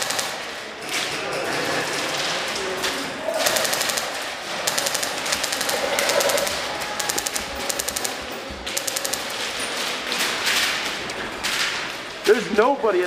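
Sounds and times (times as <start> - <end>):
airsoft guns firing bursts: 0.0 - 0.6, 3.4 - 10.9.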